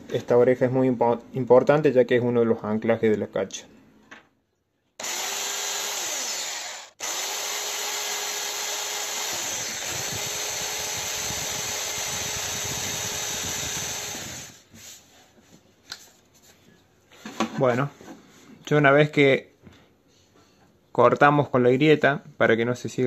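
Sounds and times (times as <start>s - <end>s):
electric drill running: 5.0s - 14.6s.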